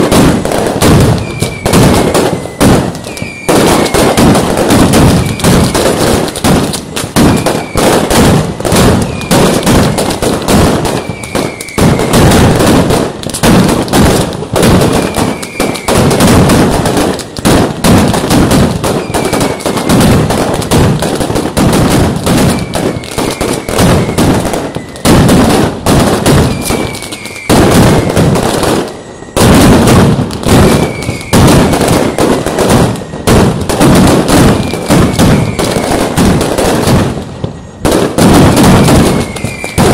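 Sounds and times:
firecracker bangs: 0.0 - 39.9
short falling whistle: 2.4 - 4.0.

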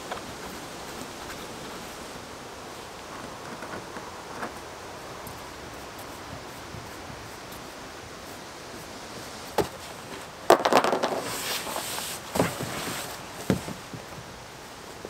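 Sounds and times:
clicks and rustling scraping: 2.8 - 14.3
knocks against cardboard: 12.3 - 14.1.

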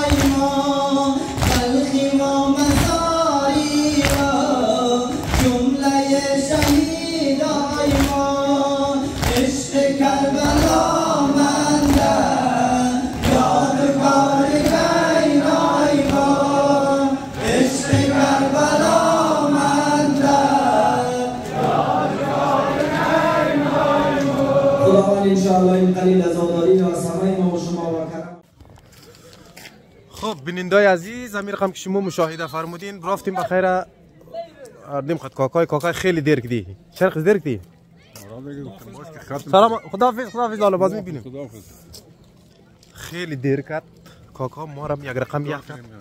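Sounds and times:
crowd of men chanting: 0.0 - 26.5
chest-beating slaps: 0.1 - 0.5, 1.4 - 1.7, 4.0 - 4.4, 5.1 - 5.7, 9.2 - 9.6, 13.1 - 13.6.

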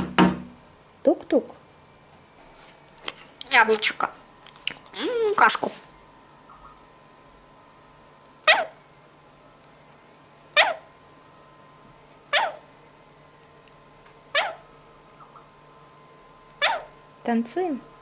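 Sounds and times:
parrot sharp falling calls: 12.3 - 12.6, 14.4 - 14.6, 16.6 - 16.9.

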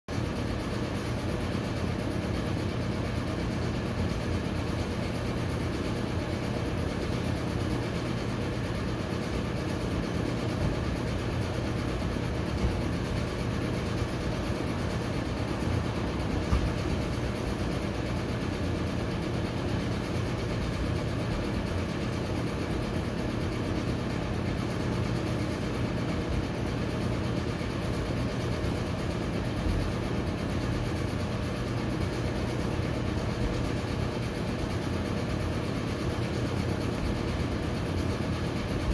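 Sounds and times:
even hum: 0.1 - 38.9
low mechanical drone: 9.4 - 21.8.

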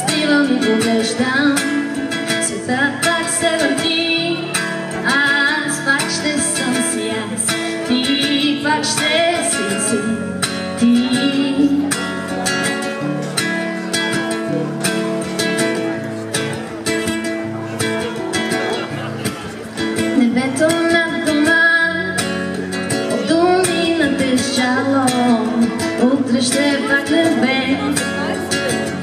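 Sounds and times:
woman singing wordlessly: 0.0 - 12.0, 20.0 - 22.2, 23.1 - 28.3
acoustic guitar strumming: 0.0 - 29.0.

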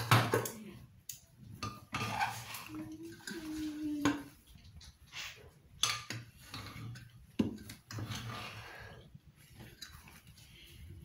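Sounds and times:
metal spoon scraping a pot: 1.6 - 10.3.

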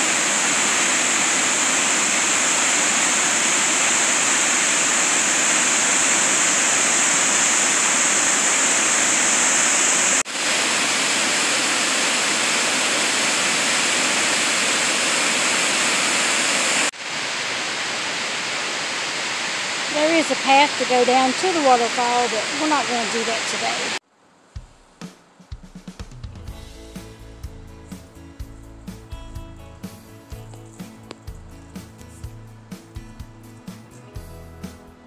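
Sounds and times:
water rushing down waterfall: 0.0 - 24.0.

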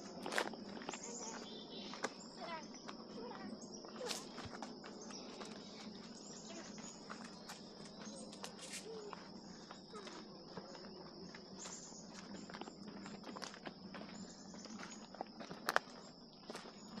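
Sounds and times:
footsteps on a trail: 0.0 - 17.0
high-pitched insect chorus: 0.0 - 17.0.

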